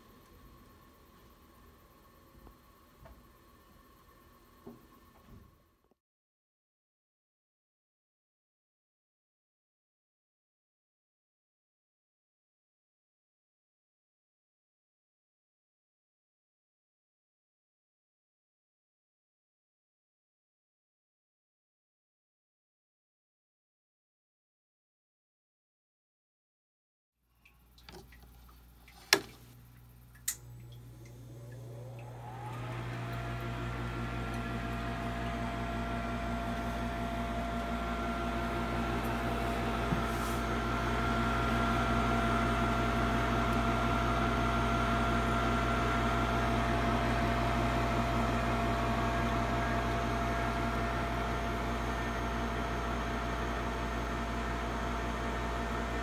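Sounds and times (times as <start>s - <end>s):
furnace fan whirring and humming: 0.0s - 5.8s, 27.5s - 56.0s
small click: 30.2s - 30.5s.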